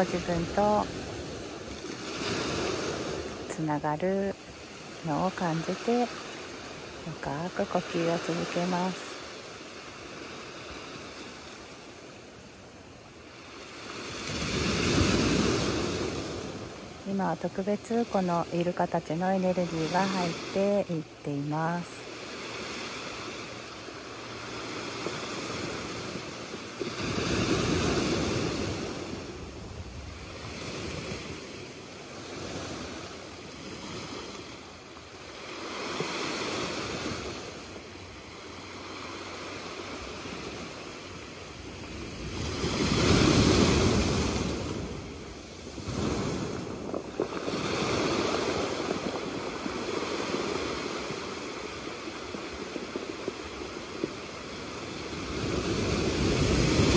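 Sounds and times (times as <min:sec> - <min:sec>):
waves washing over pebbles: 0:17.8 - 0:56.9.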